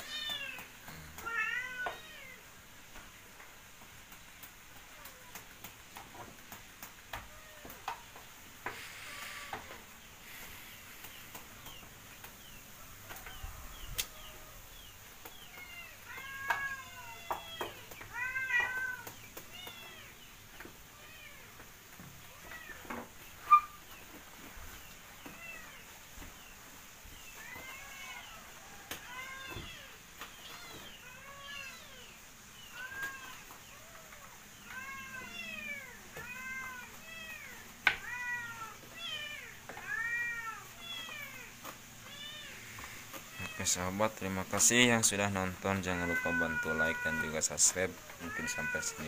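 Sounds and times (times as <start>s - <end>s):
cat meowing: 1.2s - 2.4s, 32.7s - 42.7s, 45.8s - 47.4s, 48.0s - 49.0s.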